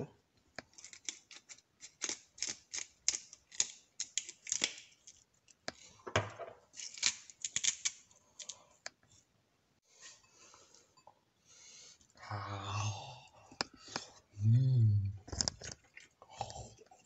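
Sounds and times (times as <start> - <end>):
spice grinder crunching clicks: 0.6 - 5.2.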